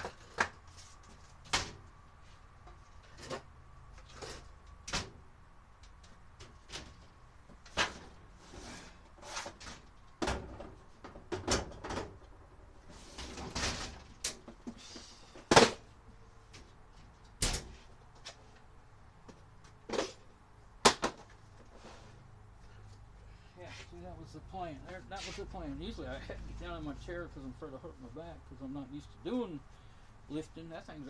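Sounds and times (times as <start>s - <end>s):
objects knocking and clunking: 0.0s - 1.9s, 9.3s - 12.4s.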